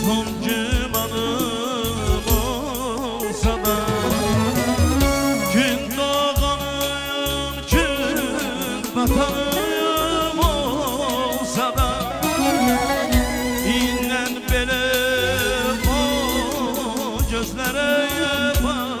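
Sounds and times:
held keyboard chords: 0.0 - 6.8, 7.7 - 17.6
steady drum beat: 0.0 - 19.0
ornamented melody: 2.4 - 6.3, 8.6 - 17.0.

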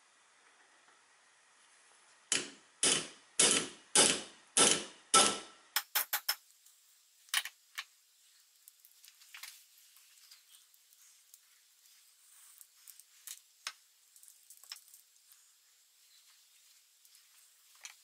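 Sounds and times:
hammer striking metal punch: 2.3 - 6.4.

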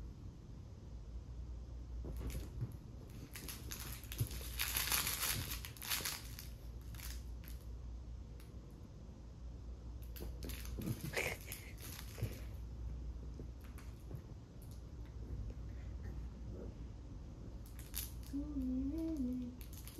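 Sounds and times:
plush toy rustling: 2.0 - 7.6, 10.2 - 12.6, 19.6 - 19.9.

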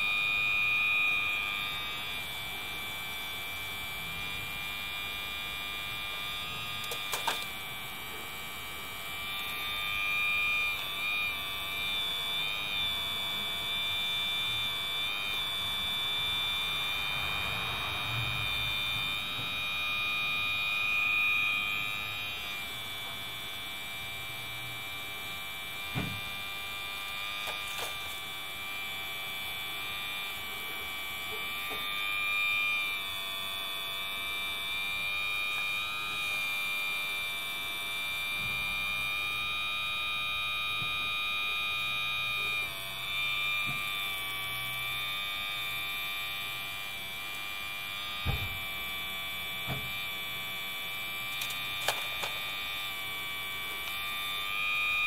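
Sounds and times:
hydraulic pump whining: 0.0 - 55.0.

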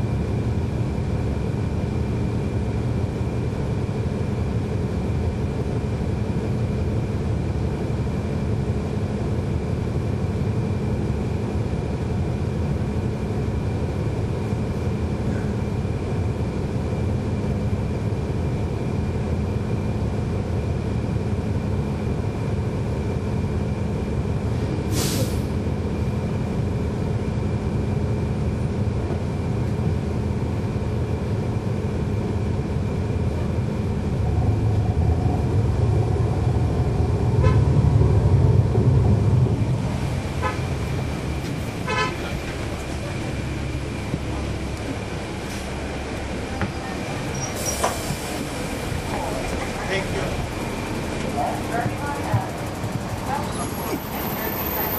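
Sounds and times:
bus diesel engine running: 0.0 - 54.9
air brake hiss: 24.5 - 25.6, 47.4 - 48.4.

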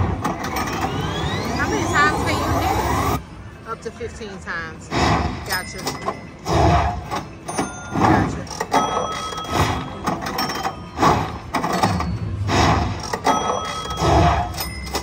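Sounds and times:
slot machine tones and chimes: 0.4 - 3.2, 7.4 - 15.0.

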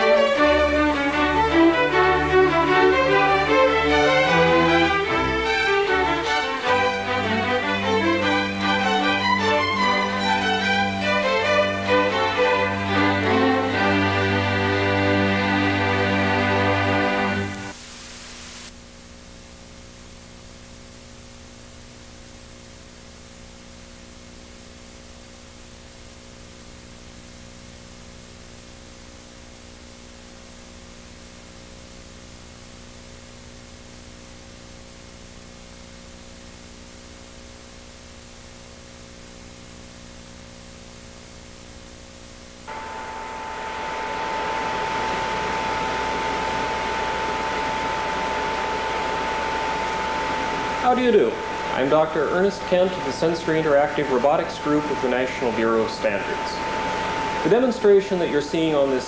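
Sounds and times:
steady high tone: 0.0 - 17.9, 42.7 - 59.0
electrical hum: 0.0 - 59.0
tape hiss: 0.0 - 59.0.

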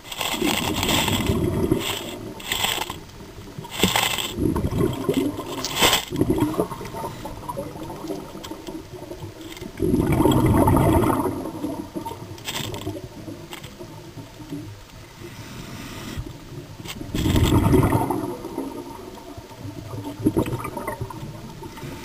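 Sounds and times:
gush of exhaled bubbles: 0.0 - 2.5, 3.3 - 13.9, 17.0 - 22.0
hissing regulator inhales: 15.2 - 16.3.

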